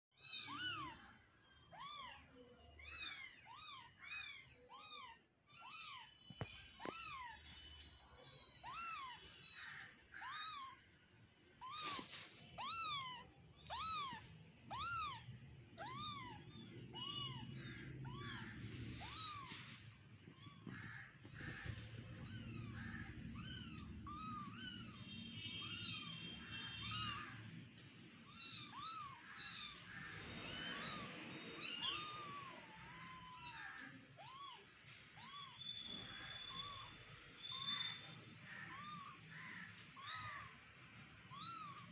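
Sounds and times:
kitten mewing: 0:11.6 - 0:15.2.

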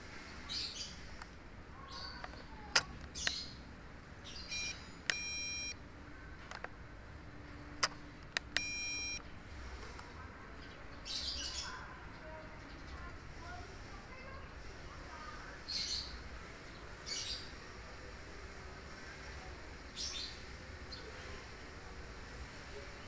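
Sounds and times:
birds chirping: 0:01.8 - 0:03.6, 0:15.2 - 0:17.6
short electronic beeps: 0:04.5 - 0:05.8, 0:08.6 - 0:09.2
sharp clicks: 0:07.8 - 0:09.2.

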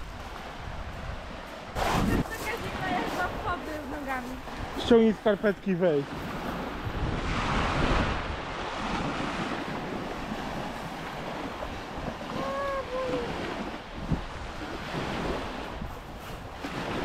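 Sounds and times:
sea waves washing on shore: 0:00.0 - 0:17.0
wind buffeting microphone: 0:00.0 - 0:17.0.

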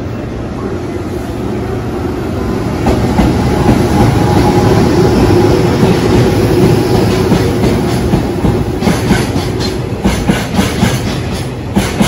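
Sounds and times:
electric locomotive hum: 0:00.0 - 0:12.0.

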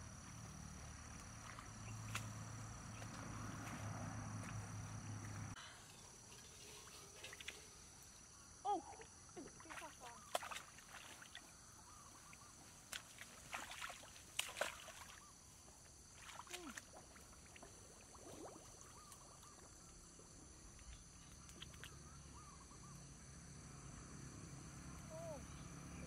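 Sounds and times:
wading in shallow water: 0:00.0 - 0:22.6
faint chirps: 0:25.0 - 0:26.0.

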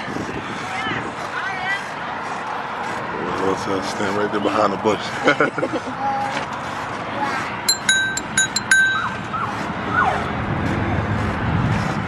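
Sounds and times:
bicycle bell dings: 0:07.7 - 0:09.2.

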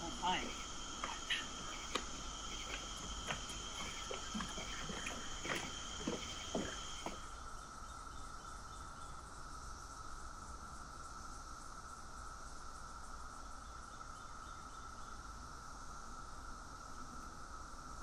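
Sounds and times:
crickets chirring: 0:00.0 - 0:18.0
knocks: 0:01.9 - 0:07.2.

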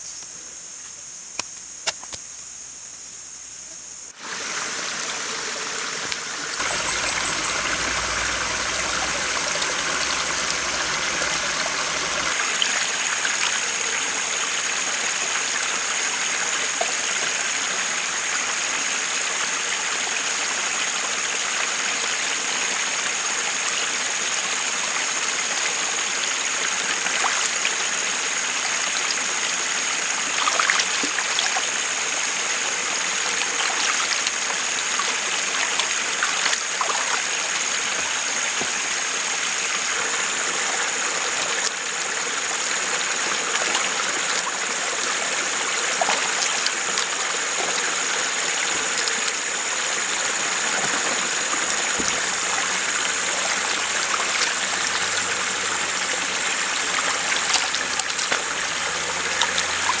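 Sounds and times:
flowing water rushing: 0:04.2 - 1:00.0
root scrubbed and rinsed in water: 0:06.2 - 0:13.6, 0:25.0 - 1:00.0.

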